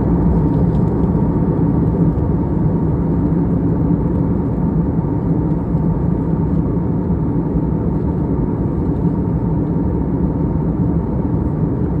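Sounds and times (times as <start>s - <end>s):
faint constant hum: 0.0s - 12.0s
jet engines rumbling: 0.0s - 12.0s.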